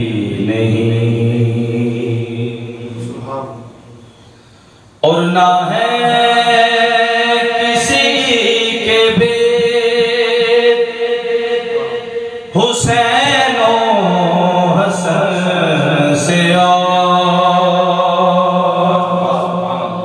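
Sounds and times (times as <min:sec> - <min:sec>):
man singing into microphone: 0:05.0 - 0:20.0.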